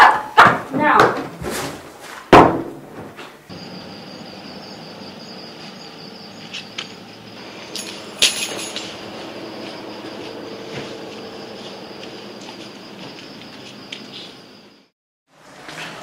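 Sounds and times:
night insects chirring: 3.5s - 14.9s.

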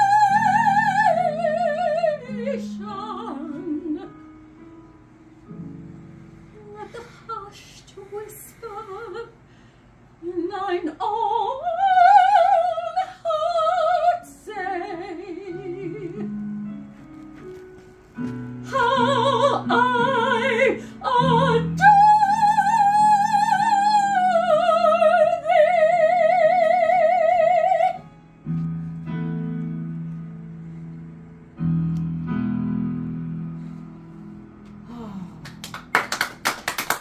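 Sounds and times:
soprano singing with vibrato: 0.0s - 4.2s, 6.6s - 9.4s, 10.2s - 16.3s, 18.6s - 28.0s
piano accompaniment: 0.0s - 37.0s
hand clapping: 35.4s - 37.0s.

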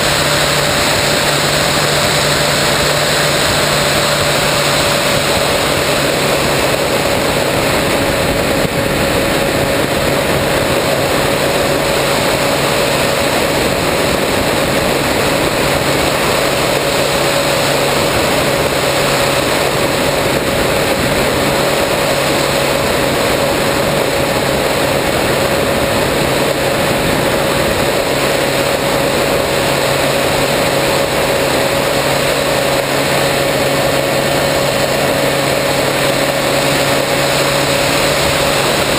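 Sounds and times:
air rushing: 0.0s - 38.9s
electric motor whine: 0.0s - 38.9s.

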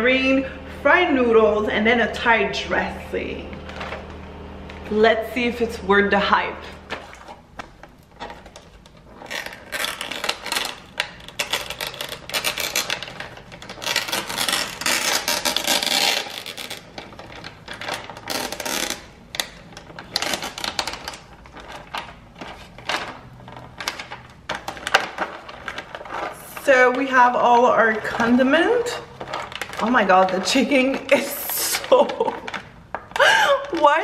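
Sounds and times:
plastic packaging crinkling: 3.5s - 4.8s, 6.6s - 34.0s
paper sleeve tearing: 9.1s - 21.5s.

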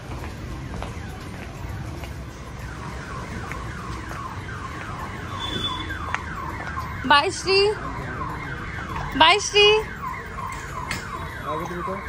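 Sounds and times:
car alarm whooping: 2.5s - 12.0s.

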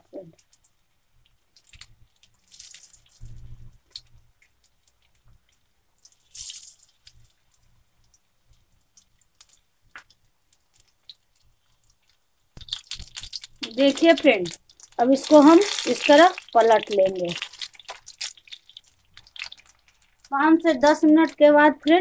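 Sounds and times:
patties frying in hot oil: 0.0s - 22.0s.

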